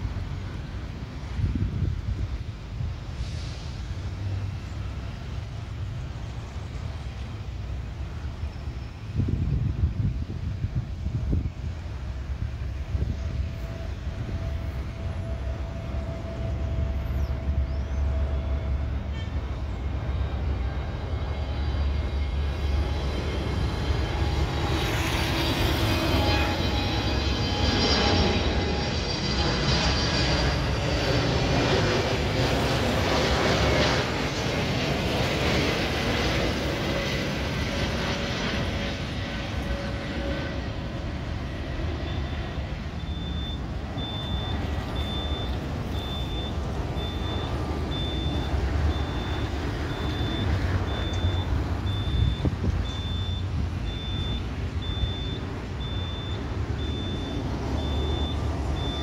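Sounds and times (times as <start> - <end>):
jet engines passing overhead: 0.0 - 59.0
reversing beeper: 13.5 - 34.8, 41.7 - 59.0.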